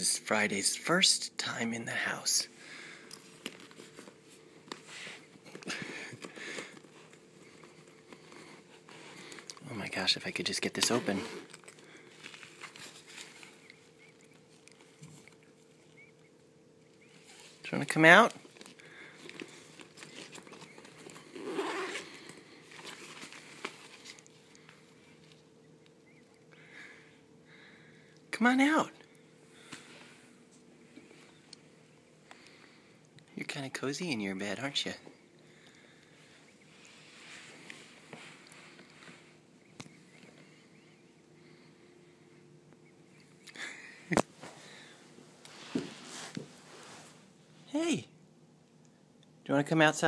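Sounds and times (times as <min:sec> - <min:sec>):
zipper being pulled open: 0:10.9 - 0:11.7, 0:19.9 - 0:22.3
fabric rustling: 0:17.2 - 0:24.8, 0:44.3 - 0:47.4
zipper pulls clicking: 0:19.3 - 0:22.4.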